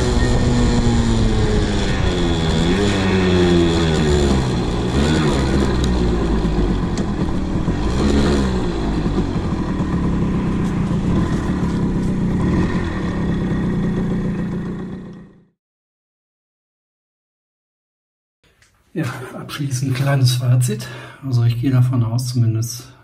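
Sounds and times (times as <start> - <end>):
moped engine revving: 0.0 - 15.6.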